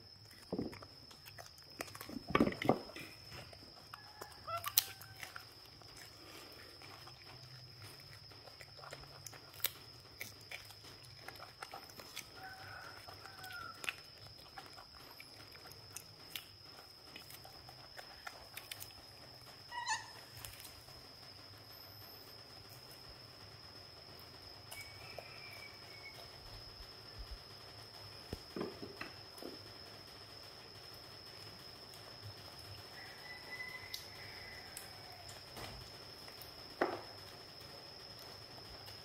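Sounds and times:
monkeys chewing crunchy food: 0:00.0 - 0:20.9
faint short monkey calls: 0:19.7 - 0:20.4.

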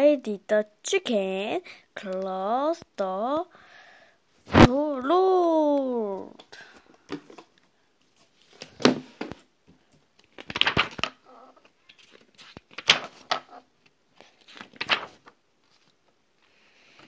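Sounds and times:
book pages turning: 0:10.2 - 0:17.0.

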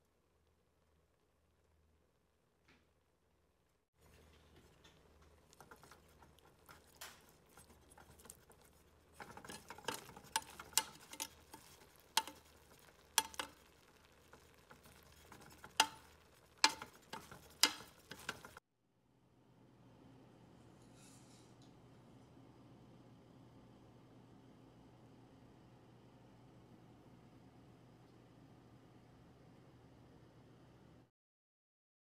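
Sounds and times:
spatula scraping rice in pot: 0:04.0 - 0:18.6
spatula clinking against pot: 0:05.4 - 0:18.6.

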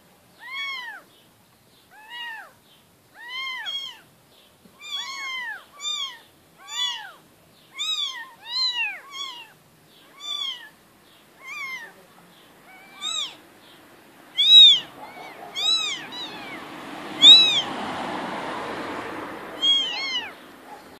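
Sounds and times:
steady background noise: 0:00.0 - 0:20.9
kittens meowing: 0:00.4 - 0:01.1, 0:01.9 - 0:04.1, 0:04.7 - 0:13.4, 0:14.3 - 0:17.8, 0:19.5 - 0:20.9.

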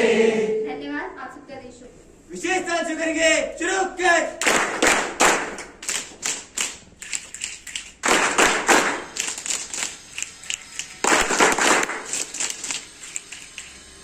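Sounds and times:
people clapping: 0:04.4 - 0:13.7.

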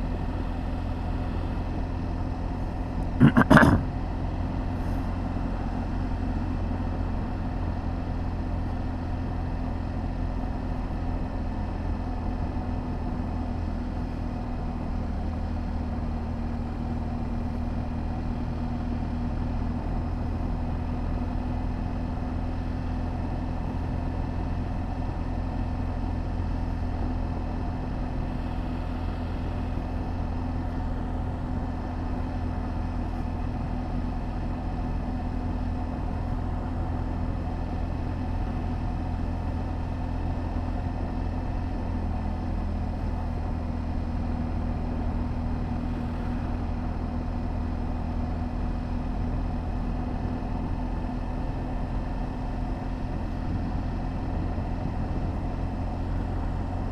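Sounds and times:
motorcycle engine droning: 0:00.0 - 0:56.9.

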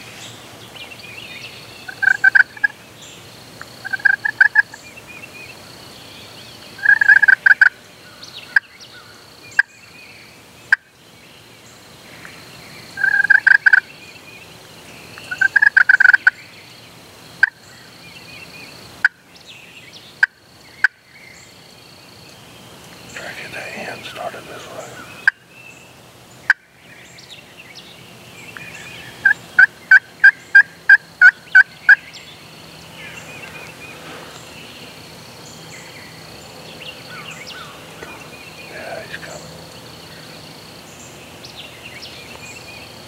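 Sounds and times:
turkey gobbling: 0:01.9 - 0:02.7.

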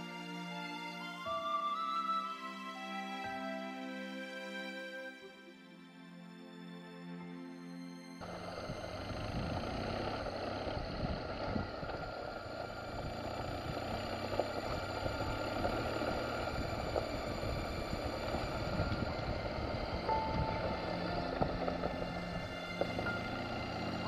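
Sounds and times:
motorcycle engine running: 0:08.2 - 0:24.0
tyres crunching on gravel: 0:08.2 - 0:24.0.

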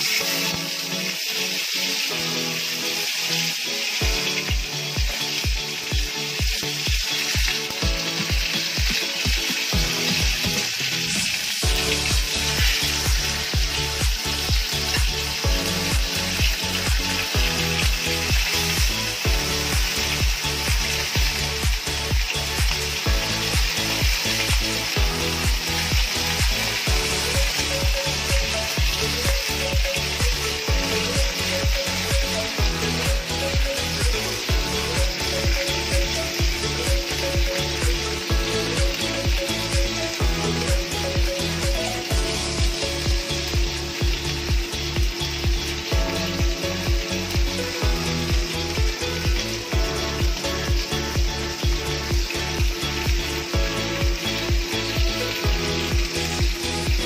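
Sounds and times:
fish sizzling in hot oil: 0:00.0 - 0:57.0
music with bass-drum beat: 0:03.9 - 0:57.0.

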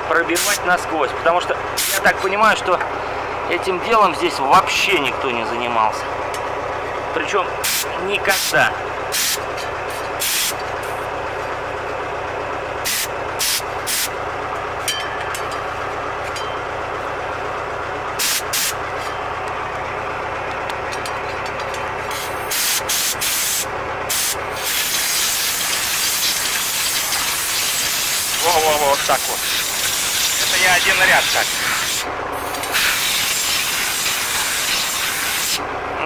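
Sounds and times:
engine idling: 0:00.0 - 0:36.0
compressed air blasts: 0:01.8 - 0:02.0, 0:07.6 - 0:08.5, 0:09.1 - 0:11.0, 0:12.8 - 0:14.2, 0:18.2 - 0:18.8, 0:22.1 - 0:28.4, 0:29.2 - 0:30.5, 0:31.2 - 0:35.6.

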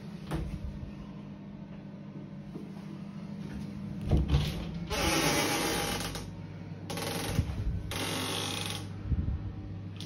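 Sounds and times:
glass shower door sliding: 0:04.1 - 0:06.2.

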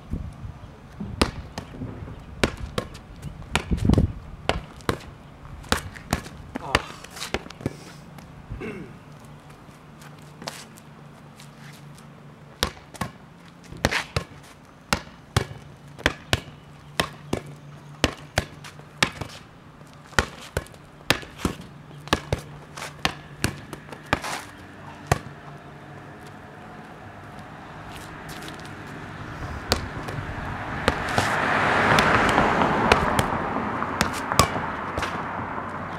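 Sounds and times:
rubber ball bouncing on concrete: 0:01.0 - 0:07.8, 0:12.6 - 0:19.4, 0:20.1 - 0:25.5, 0:29.7 - 0:33.4, 0:34.0 - 0:35.3.

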